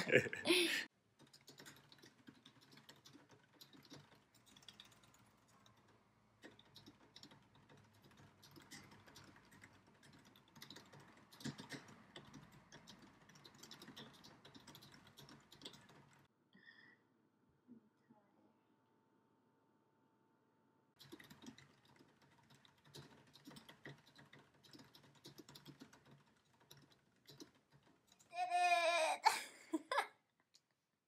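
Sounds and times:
fast typing on keyboard: 1.1 - 16.3, 21.0 - 28.3.

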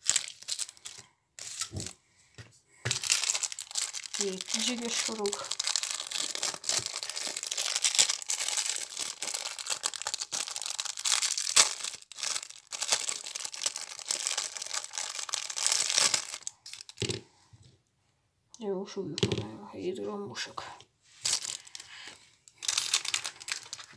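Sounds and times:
plastic bag crinkling: 0.0 - 2.0, 2.9 - 17.2, 21.2 - 23.9.

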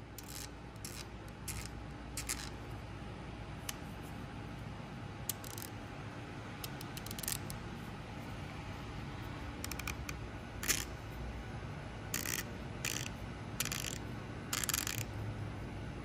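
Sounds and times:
hand ratchet clicking: 0.2 - 2.5, 5.3 - 5.7, 6.6 - 7.6, 9.6 - 10.9, 12.2 - 15.1.

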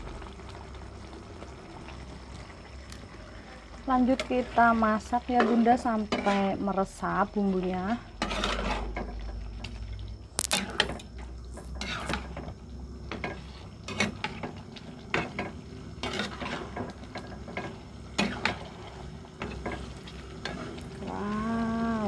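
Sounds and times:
sauce simmering: 0.0 - 22.0
metal spatula scraping a pan: 4.2 - 6.6, 8.2 - 9.1, 11.8 - 12.4, 13.1 - 20.9.

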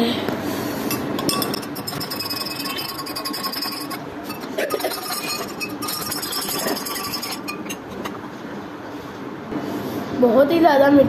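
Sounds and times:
metal spoon clinking in glass jar: 0.9 - 8.1.

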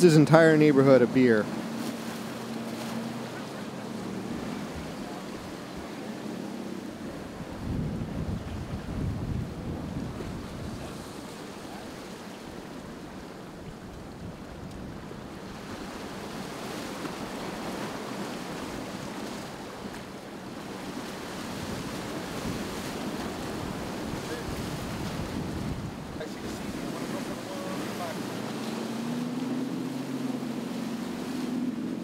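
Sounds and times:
surf washing ashore: 0.0 - 32.0
wind buffeting microphone: 4.0 - 11.4, 20.8 - 32.0.

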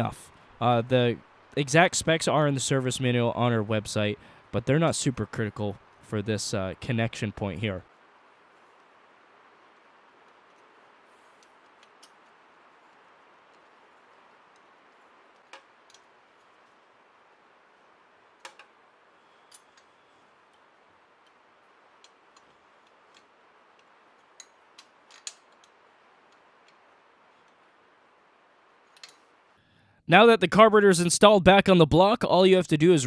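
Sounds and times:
faint steady hiss: 0.0 - 33.0
metal tool clicks: 22.0 - 26.8.

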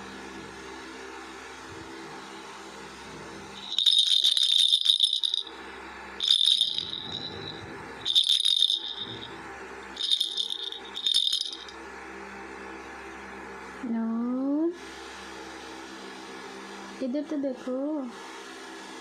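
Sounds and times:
plastic toy ball rattling: 3.6 - 5.5, 6.2 - 9.3, 10.0 - 11.7.

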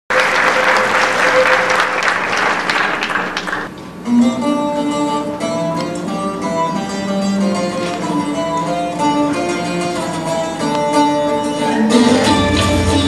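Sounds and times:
audience applauding: 0.1 - 3.7
plucked string music: 4.0 - 13.0.

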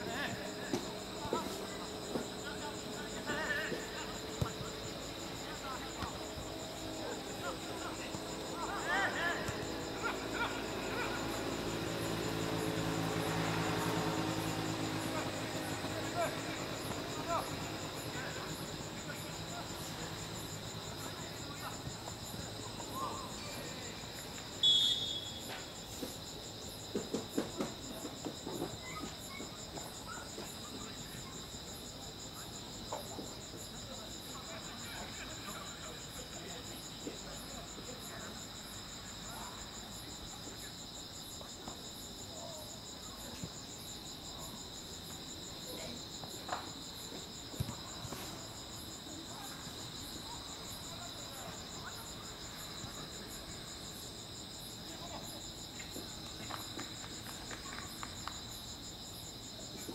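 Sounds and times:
crickets chirping: 0.0 - 59.9
shrill whistle blast: 24.6 - 25.5.

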